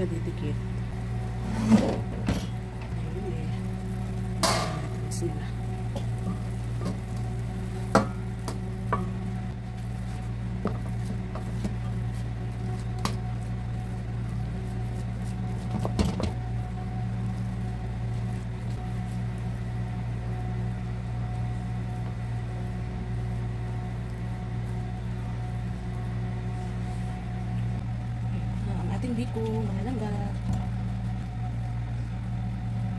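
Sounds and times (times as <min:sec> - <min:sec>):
steady low hum: 0:00.0 - 0:32.9
wooden spatula scraping and tapping: 0:05.9 - 0:13.4.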